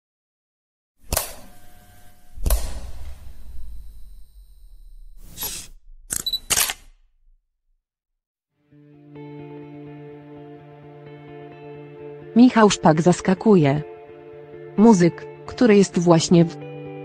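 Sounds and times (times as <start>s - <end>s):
sharp hit: 1.1s - 6.1s
deep rumbling boom: 2.4s - 6.1s
camera focusing: 5.2s - 7.0s
camera focus beep: 5.3s - 7.0s
camera shutter clicks: 5.4s - 7.0s.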